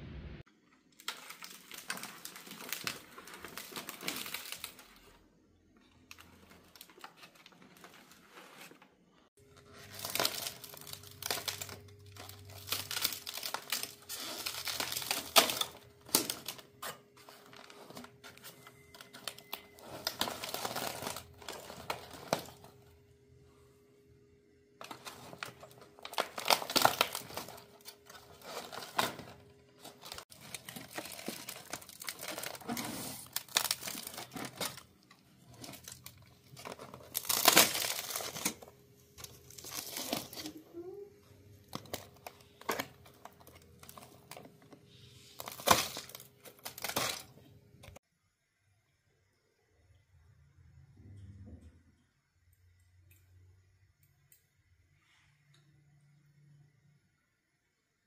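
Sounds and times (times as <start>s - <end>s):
aluminium foil crinkling: 0.7s - 5.2s, 5.9s - 22.9s, 24.8s - 48.0s.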